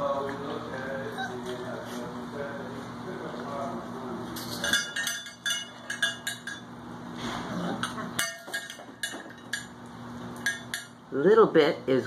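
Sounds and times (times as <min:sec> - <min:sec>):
metal dishes clinking: 0:04.4 - 0:06.7, 0:07.8 - 0:09.8, 0:10.4 - 0:11.0.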